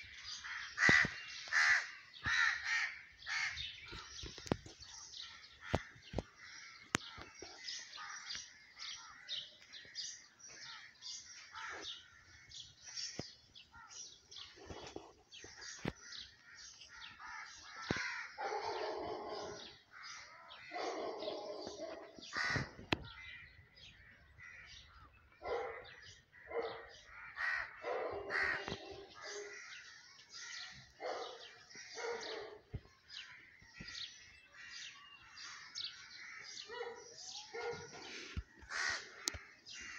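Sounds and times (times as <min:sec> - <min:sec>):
small birds chirping: 0:00.0 - 0:39.9
crow cawing: 0:00.3 - 0:03.6, 0:16.1 - 0:21.0, 0:21.7 - 0:25.1, 0:26.4 - 0:30.7, 0:38.5 - 0:39.9.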